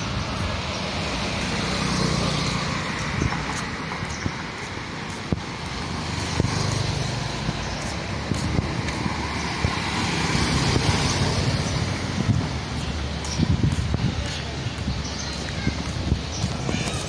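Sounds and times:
motorbike passing close by: 0.0 - 3.6, 5.8 - 12.7
small motorbike engines: 0.0 - 17.0
tyre noise on road: 0.0 - 17.0.

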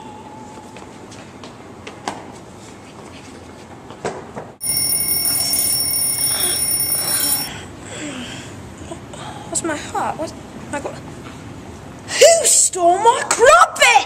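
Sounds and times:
electronic ringing tone: 4.6 - 7.5.

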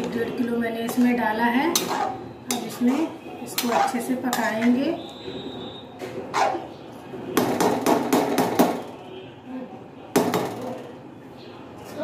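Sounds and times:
metal spoon knocking metal pan: 0.8 - 4.8.

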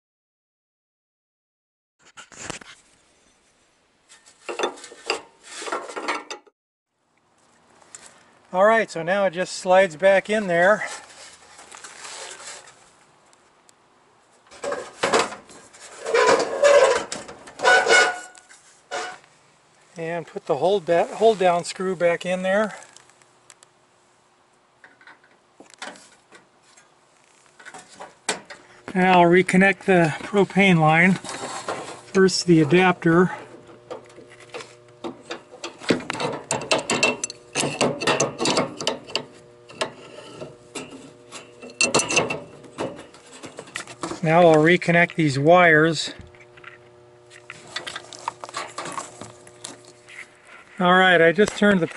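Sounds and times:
metal casing scraping sheet metal: 2.0 - 6.3, 14.5 - 19.2, 29.5 - 45.1
wrench clicking and scraping metal: 35.2 - 43.9.

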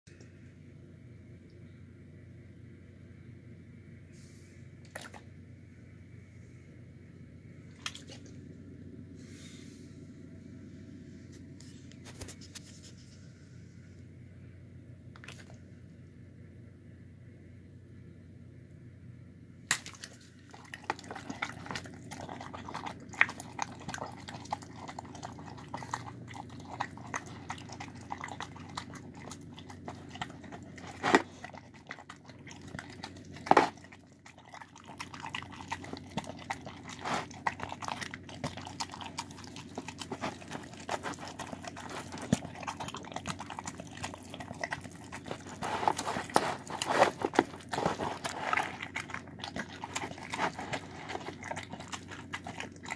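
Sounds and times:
dog chewing wet food: 19.7 - 52.9.

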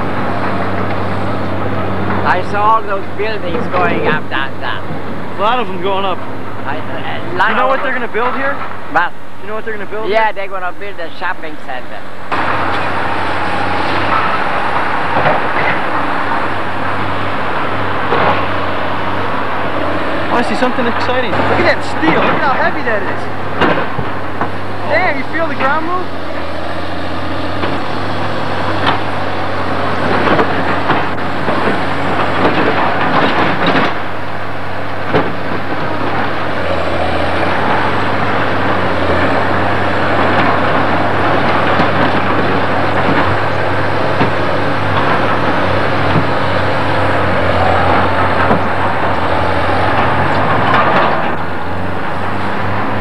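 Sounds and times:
diesel engine running: 0.0 - 53.0
metal clanks and knocks: 12.3 - 24.8, 25.6 - 53.0.

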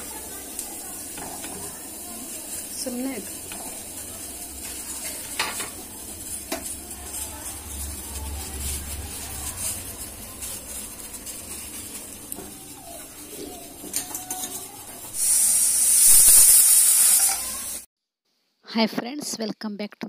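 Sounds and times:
pressure cooker steam hiss: 0.0 - 7.4, 14.6 - 17.9
stovetop rumble: 0.0 - 17.8.

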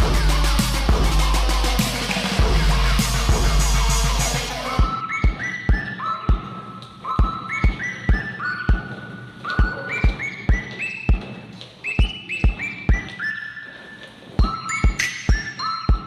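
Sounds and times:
deep kick drum beat: 0.0 - 5.4
whistle-like synth melody: 3.4 - 16.0.

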